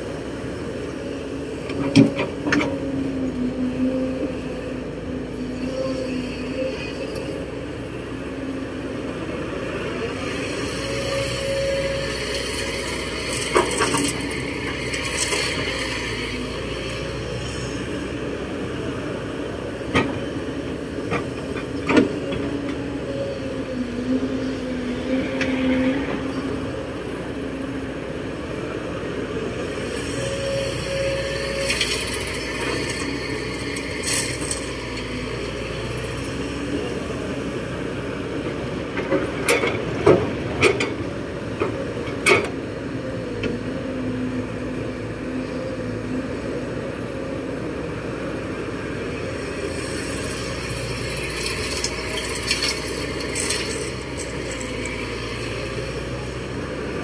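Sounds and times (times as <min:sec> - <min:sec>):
excavator diesel engine under load: 0:00.0 - 0:57.0
hydraulic whine: 0:01.5 - 0:17.8, 0:21.0 - 0:37.4.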